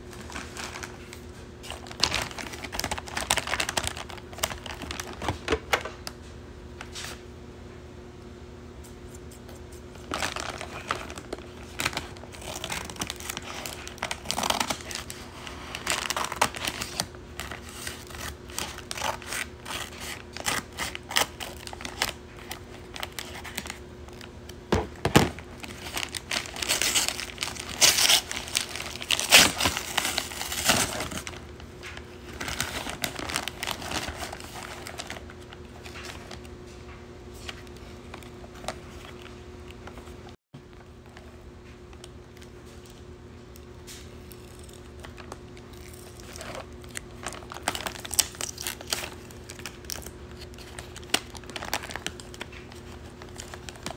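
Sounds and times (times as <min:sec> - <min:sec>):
paper bag rustling and crinkling: 0:00.0 - 0:06.1, 0:09.4 - 0:24.3, 0:25.0 - 0:40.4, 0:43.8 - 0:53.9.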